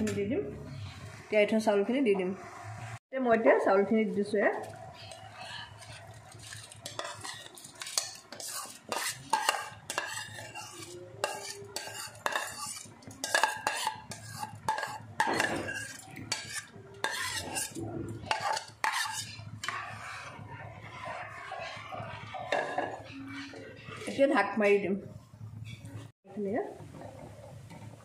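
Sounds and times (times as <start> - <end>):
spoon scraping ceramic bowl: 5.0 - 24.3.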